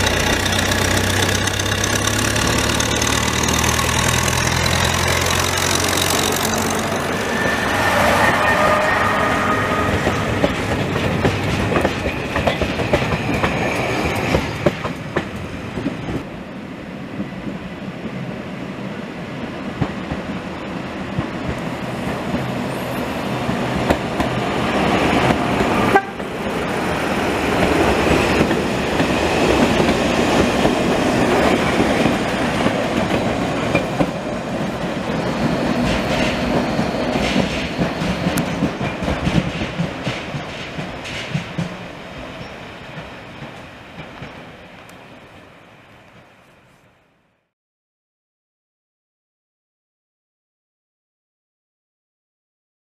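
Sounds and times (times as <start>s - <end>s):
train wheels clattering: 0.0s - 9.0s, 9.7s - 16.2s, 27.5s - 44.5s.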